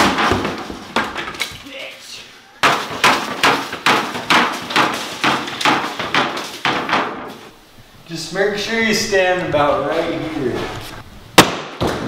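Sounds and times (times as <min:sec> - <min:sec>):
drywall being smashed: 0:00.0 - 0:01.6, 0:02.6 - 0:07.5, 0:11.4 - 0:12.0.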